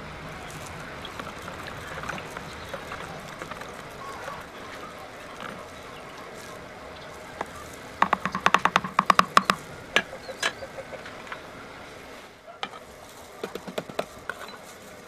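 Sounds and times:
ladle clacks: 0:00.3 - 0:11.5
sharp plastic knocks: 0:07.4 - 0:10.6, 0:13.4 - 0:14.4.

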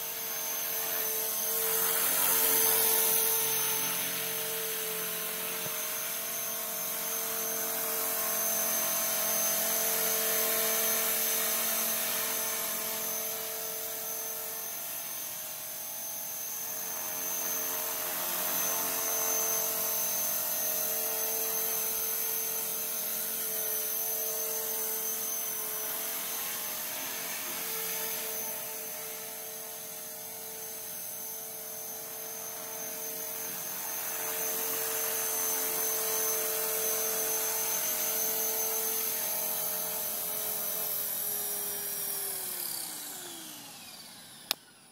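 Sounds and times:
rc helicopter motor whine: 0:00.0 - 0:44.9
rotor whir: 0:00.0 - 0:44.9.

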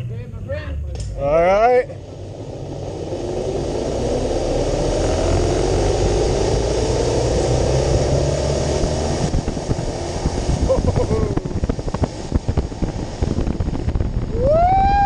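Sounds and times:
wind on microphone: 0:02.1 - 0:15.0
zip line pulleys whirring on cable: 0:02.4 - 0:08.5.

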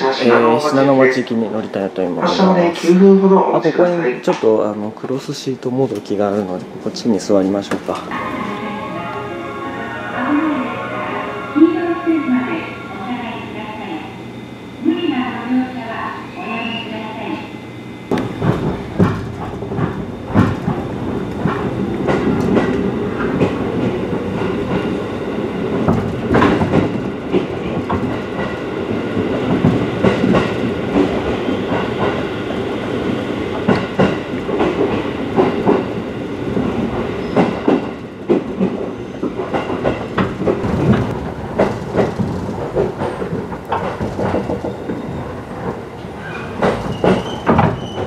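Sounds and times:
train ride rumble: 0:00.0 - 0:48.0
wheels clickety-clack over rail joints: 0:18.1 - 0:48.0.

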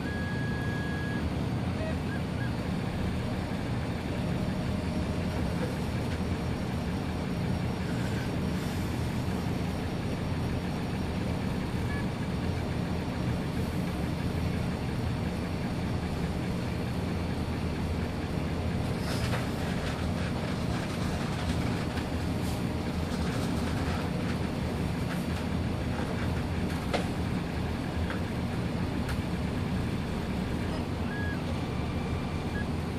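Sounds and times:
cooling fans humming: 0:19.6 - 0:32.9.

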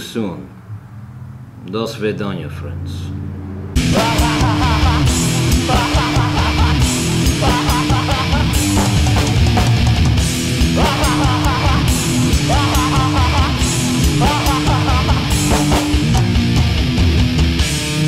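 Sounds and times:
heavy rock music: 0:03.7 - 0:18.0
steady drum beat: 0:03.8 - 0:17.9
electric guitar: 0:03.8 - 0:18.0.

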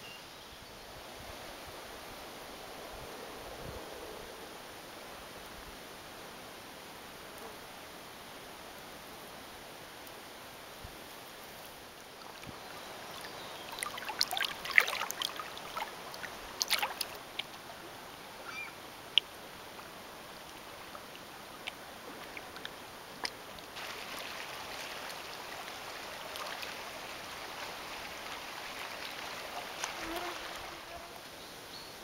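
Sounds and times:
soft rush of wind and water: 0:00.0 - 0:32.0
waves lapping against rocks: 0:12.0 - 0:31.0.

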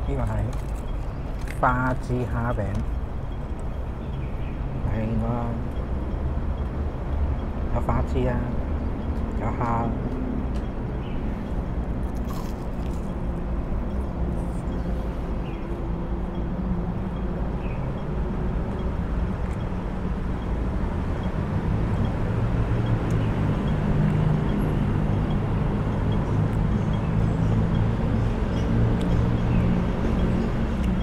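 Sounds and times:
traffic engines rumbling: 0:00.0 - 0:31.0
person chewing crispy food: 0:12.0 - 0:13.2.

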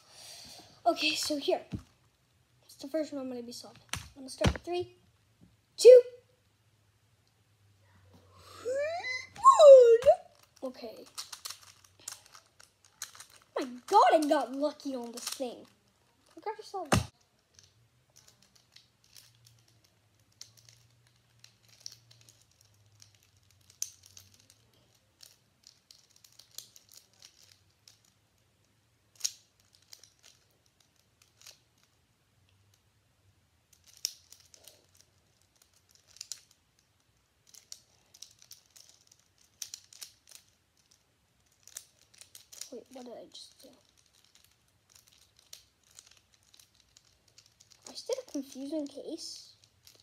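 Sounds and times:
puzzle cube layers clicking: 0:09.8 - 0:28.2.

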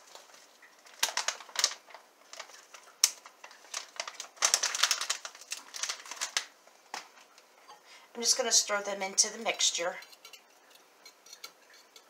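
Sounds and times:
plastic pouch crinkling: 0:00.0 - 0:07.5.

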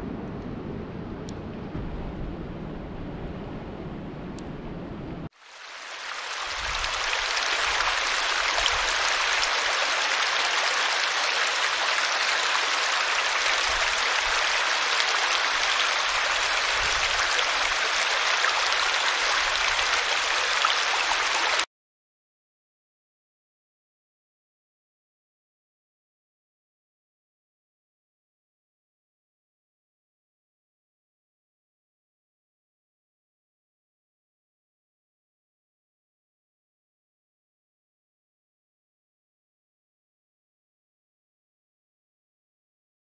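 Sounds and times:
low rushing noise: 0:00.0 - 0:05.3
stream splashing over a log: 0:05.4 - 0:21.7.

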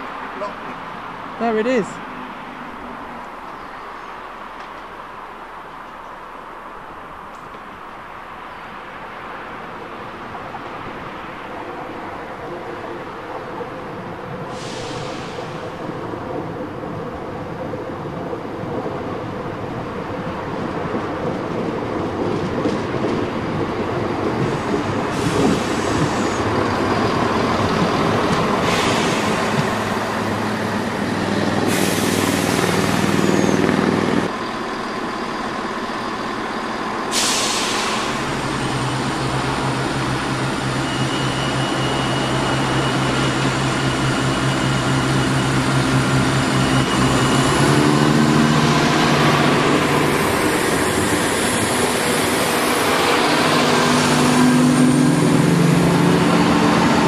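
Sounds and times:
train running in and braking: 0:00.0 - 0:57.0
air brake hisses: 0:14.5 - 0:15.6, 0:28.6 - 0:29.6, 0:37.1 - 0:38.3
diesel engines idling: 0:30.6 - 0:40.7.

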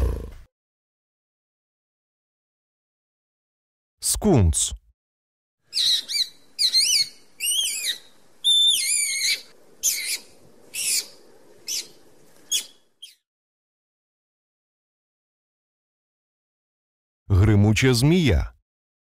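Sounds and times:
skunk squeaking and chirping: 0:05.7 - 0:11.9, 0:12.5 - 0:13.2.

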